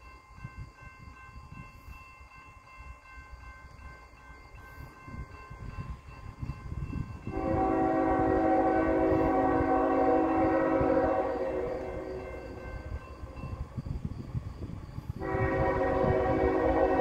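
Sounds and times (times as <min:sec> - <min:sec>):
locomotive horn blast: 0:07.3 - 0:12.4, 0:15.2 - 0:17.0.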